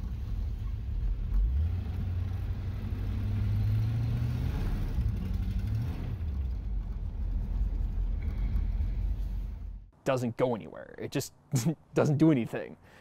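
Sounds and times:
car engine revving rough: 0.0s - 9.7s.

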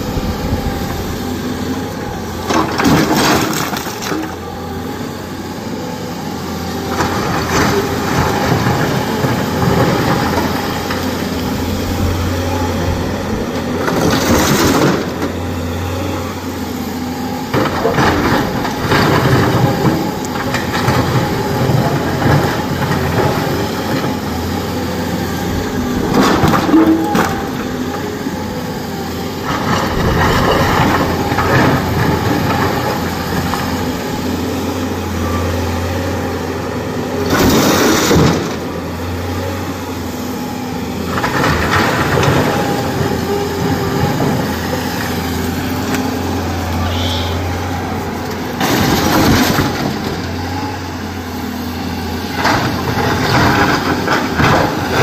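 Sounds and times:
excavator diesel engine: 0.0s - 55.0s.

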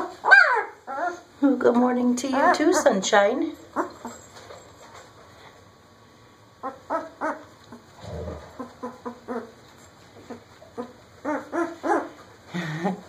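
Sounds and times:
puppy whining and squeaking: 0.0s - 1.4s, 3.6s - 4.7s, 6.6s - 12.3s.

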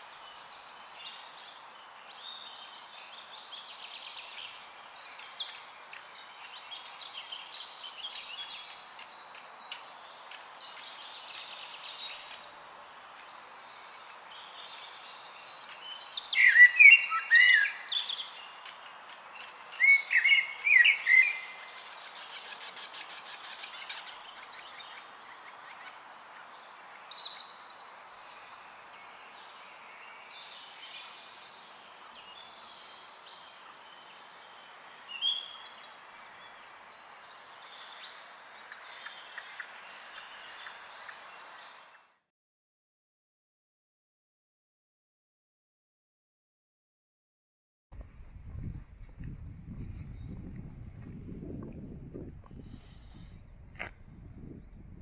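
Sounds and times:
faint steady hiss: 0.0s - 42.2s
birds chirping and singing: 0.3s - 26.5s.

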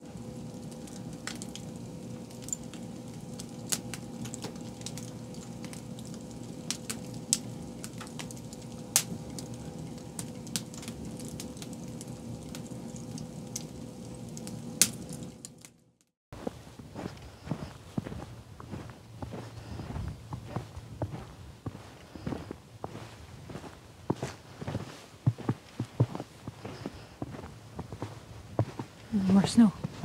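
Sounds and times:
rush of flame: 0.0s - 15.7s
fire crackling and popping: 0.0s - 16.1s.

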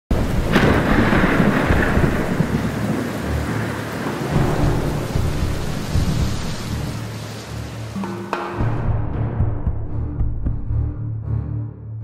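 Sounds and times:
thunder rumbling: 0.1s - 7.6s
heavy rain falling: 0.1s - 8.7s.

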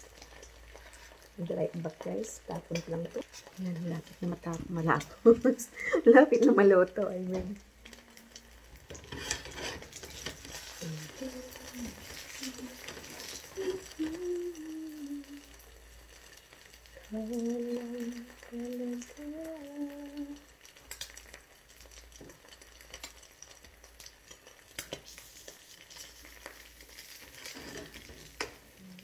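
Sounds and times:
food sizzling in a pan: 0.0s - 29.0s
woman humming a tune: 10.7s - 15.6s, 17.0s - 20.4s.

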